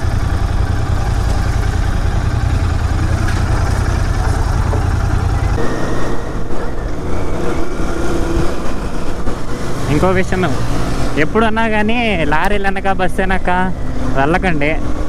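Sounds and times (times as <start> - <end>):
motorcycle engine rumble: 0.0 - 14.2.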